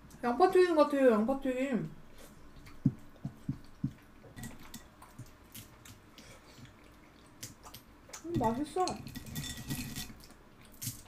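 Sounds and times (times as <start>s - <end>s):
wet squishy chewing: 2.6s - 8.3s.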